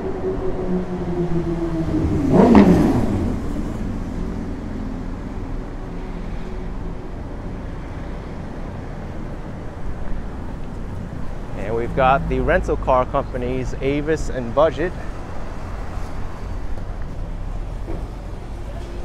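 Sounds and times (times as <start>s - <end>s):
vehicle passing close: 0.0s - 5.4s, 10.2s - 16.4s
traffic hum: 0.0s - 19.0s.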